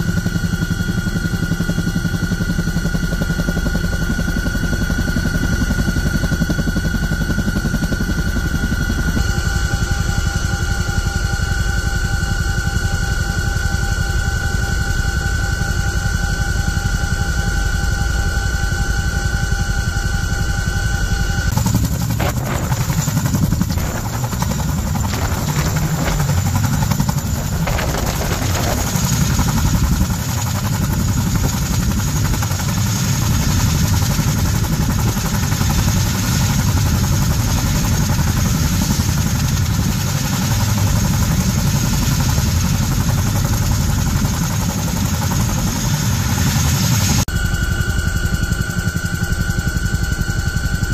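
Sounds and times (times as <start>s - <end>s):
helicopter rotor beat: 0.0s - 50.9s
helicopter turbine noise: 0.0s - 50.9s.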